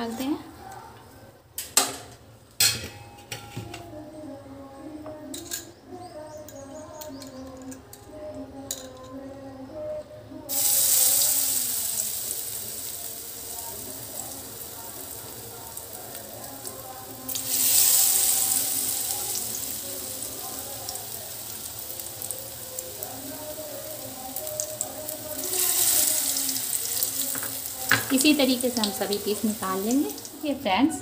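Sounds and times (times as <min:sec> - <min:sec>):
food sizzling in hot oil: 0:10.5 - 0:30.9.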